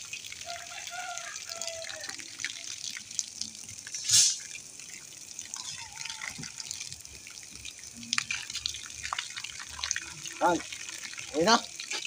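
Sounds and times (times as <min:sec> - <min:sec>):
water dripping and trickling: 0:00.0 - 0:12.0
short rush of water: 0:03.9 - 0:04.6.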